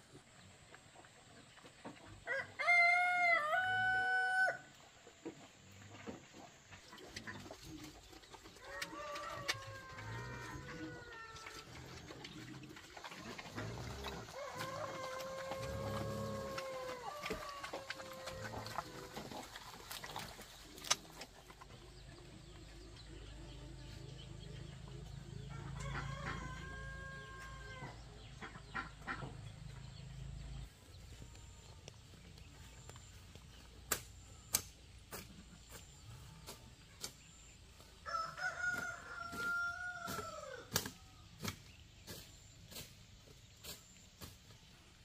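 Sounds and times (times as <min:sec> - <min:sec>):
rooster crowing: 0:02.3 - 0:04.7, 0:08.6 - 0:11.5, 0:14.3 - 0:19.0, 0:25.5 - 0:28.0, 0:38.0 - 0:40.6.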